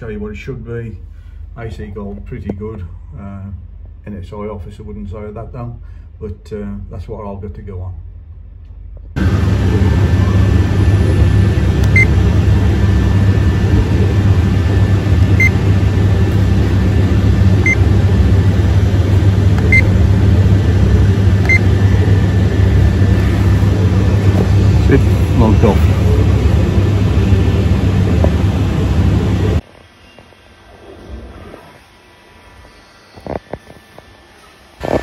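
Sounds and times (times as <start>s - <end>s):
loud low hum: 0.0s - 29.6s
alarm keypad beeps: 15.4s - 15.6s, 19.6s - 19.9s, 21.5s - 21.7s.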